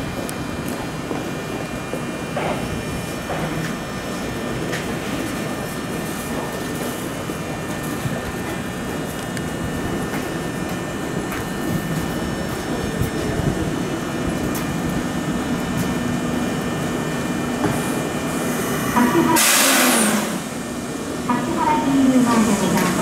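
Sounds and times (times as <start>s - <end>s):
electric train running with low hum: 0.0s - 23.0s
loud hiss of air: 18.4s - 20.6s.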